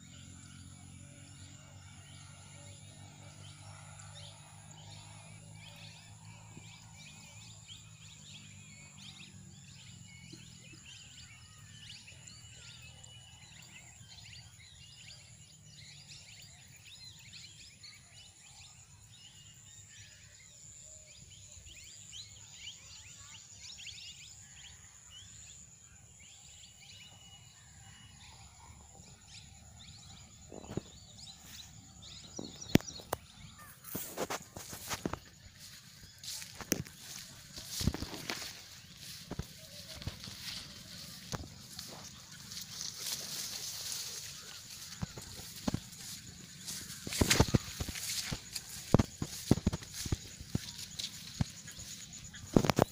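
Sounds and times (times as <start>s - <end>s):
small birds chirping: 0.0s - 24.8s, 26.0s - 52.9s.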